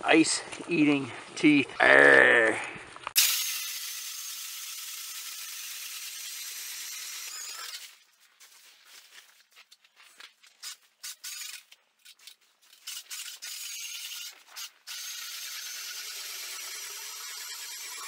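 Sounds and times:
cordless drill turning ice auger: 3.2s - 8.0s, 11.0s - 18.0s.

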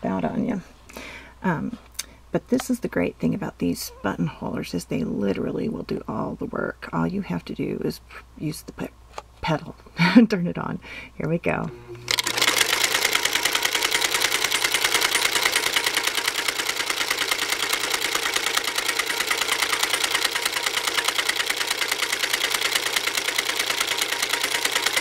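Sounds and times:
sewing machine clattering: 12.1s - 25.0s.

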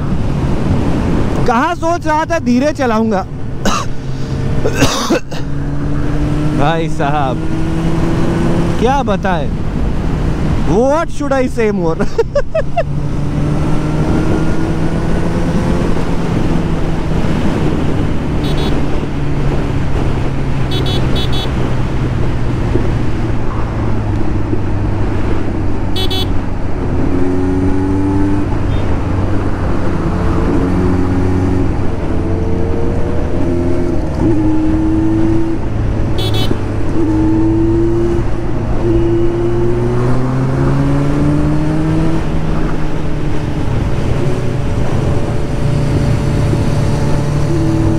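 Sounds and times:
wind noise: 0.0s - 1.5s, 12.2s - 47.9s
road noise: 0.0s - 47.9s.

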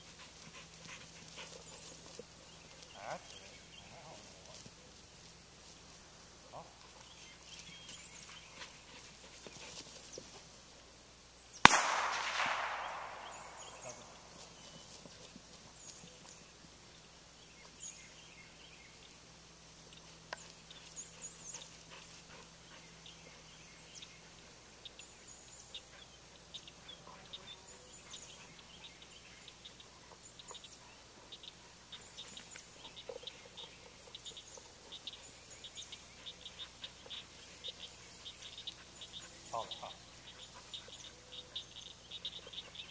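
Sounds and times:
faint chirping: 11.4s - 19.2s, 19.8s - 42.9s
gunshot with echo: 11.6s - 14.4s.

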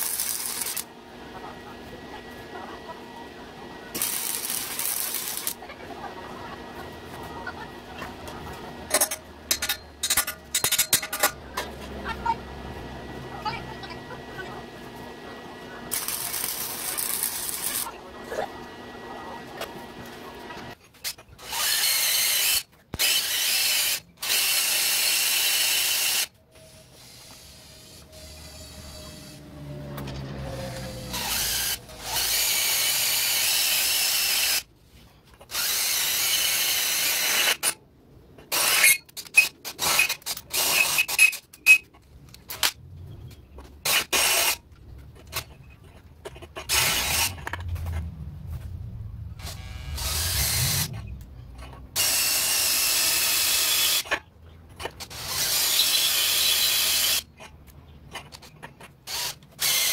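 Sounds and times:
power drill boring through metal: 0.0s - 0.9s, 3.9s - 5.6s, 21.4s - 29.4s, 30.7s - 34.6s, 35.5s - 37.8s, 38.5s - 41.4s, 43.9s - 44.6s, 46.7s - 47.5s, 49.4s - 51.0s, 52.0s - 54.1s, 55.1s - 57.3s, 59.1s - 59.9s.

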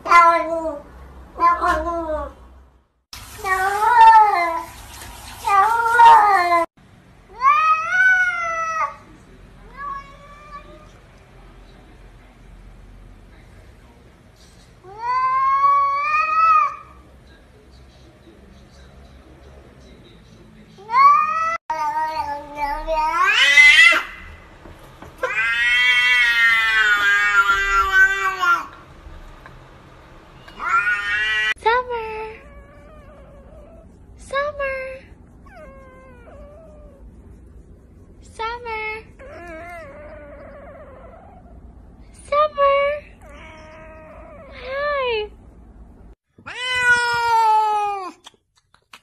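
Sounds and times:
cats meowing: 9.6s - 11.0s, 20.8s - 24.4s, 25.2s - 28.8s, 30.4s - 31.6s, 43.2s - 44.6s, 46.4s - 48.1s.

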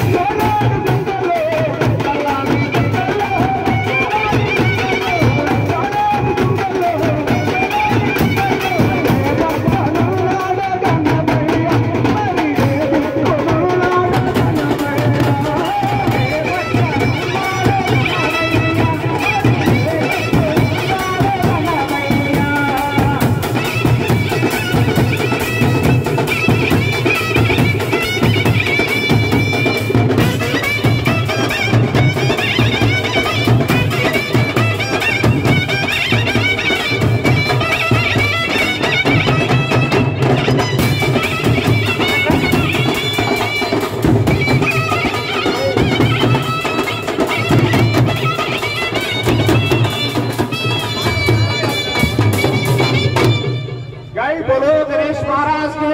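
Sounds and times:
drumming: 0.0s - 55.9s
clarinet melody: 23.7s - 54.2s.

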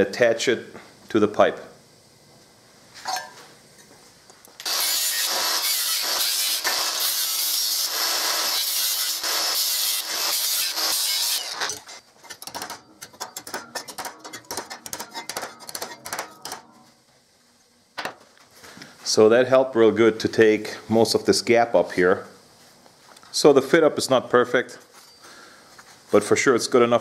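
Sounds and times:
angle grinder grinding steel: 4.6s - 12.0s.

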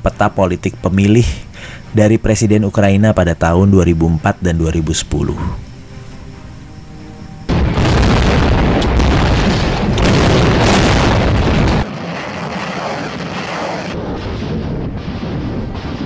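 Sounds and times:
explosions blasting and rumbling: 7.5s - 16.0s
rocket launcher firing: 7.5s - 16.0s.

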